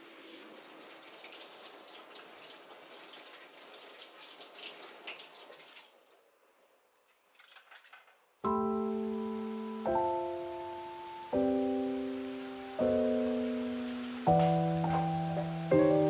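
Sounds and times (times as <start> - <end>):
faucet running into metal sink: 0.0 - 6.0.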